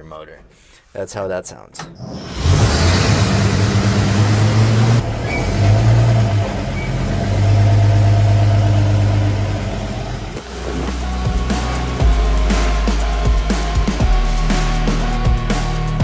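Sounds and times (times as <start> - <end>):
truck engine idling: 2.4 - 13.6.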